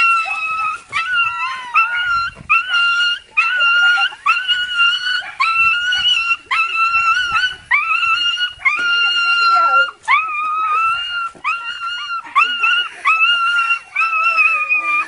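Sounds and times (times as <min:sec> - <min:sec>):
dog whining: 0:00.0 - 0:15.0.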